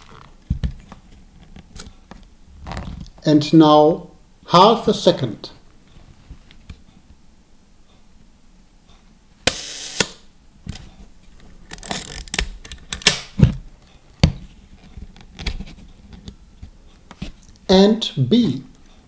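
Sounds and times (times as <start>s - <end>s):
shutter gears whirring: 9.5s - 10.2s.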